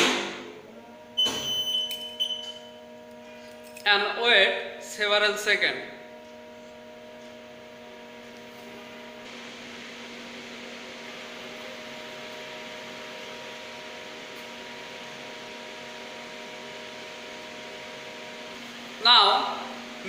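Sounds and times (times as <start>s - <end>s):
lathe electrical hum: 0.0s - 20.0s
fan hiss: 6.5s - 20.0s.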